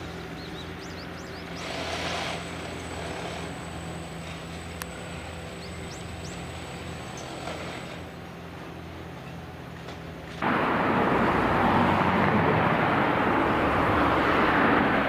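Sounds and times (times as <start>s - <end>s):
excavator diesel engine running: 0.0s - 15.0s
bird chirps: 0.2s - 1.7s.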